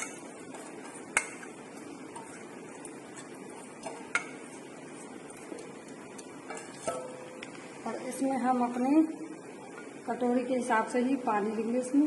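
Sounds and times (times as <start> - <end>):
faint background hiss: 0.0 - 12.0
steel bowl clinking on steel jar: 6.5 - 7.2.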